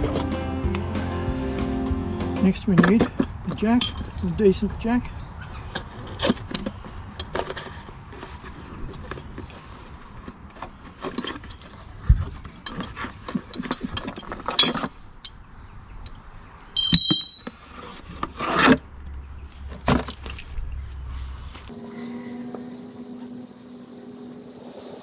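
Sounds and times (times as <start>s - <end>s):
ringing metal clink: 16.8s - 17.5s.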